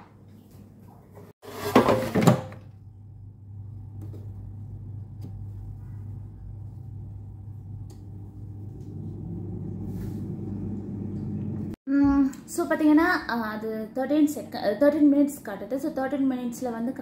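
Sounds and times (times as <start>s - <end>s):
steady low hum: 2.7s - 12.4s.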